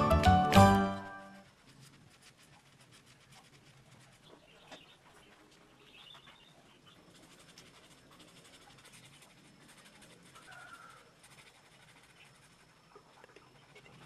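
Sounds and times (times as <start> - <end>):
marker scratching on tissue: 1.4 - 4.4, 7.1 - 12.7.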